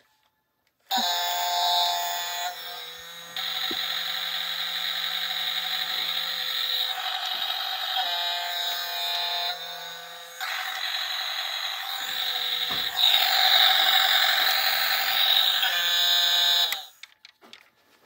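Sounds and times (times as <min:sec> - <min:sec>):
tinny electronic toy tune: 0:00.9 - 0:09.9, 0:11.8 - 0:17.0
mechanical whirr: 0:00.9 - 0:17.2.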